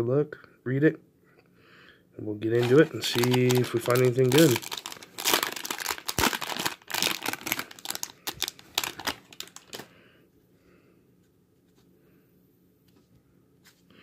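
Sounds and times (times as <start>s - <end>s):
foil wrapper crinkling and tearing: 2.6s - 9.9s.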